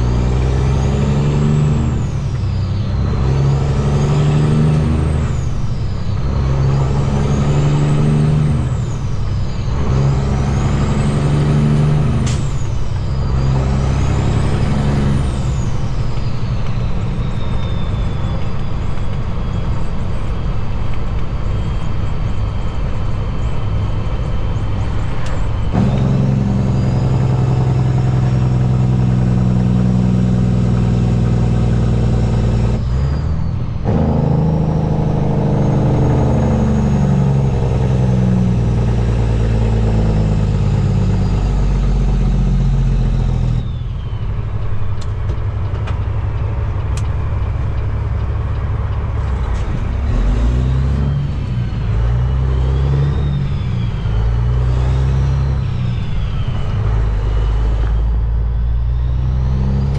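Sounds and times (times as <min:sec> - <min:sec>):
high turbo whistle: 0:00.0 - 0:20.7, 0:25.2 - 0:44.5, 0:50.0 - 0:59.9
diesel truck engine pulling: 0:00.0 - 0:59.9.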